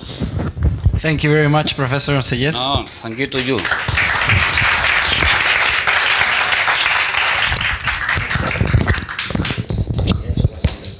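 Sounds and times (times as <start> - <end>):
audience applauding: 2.8 - 9.8.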